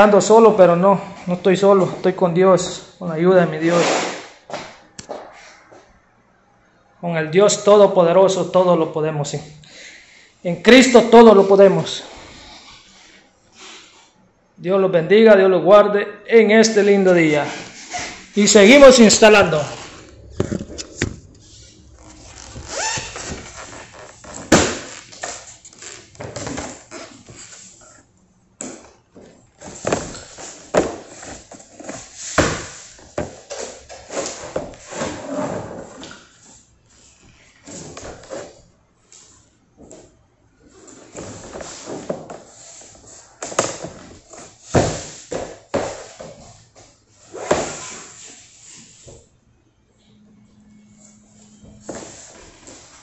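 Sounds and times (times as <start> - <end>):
vinyl floor planks scraping: 3.6 - 5.9, 16.6 - 28.1, 28.7 - 38.6, 40.6 - 49.2, 51.6 - 53.0.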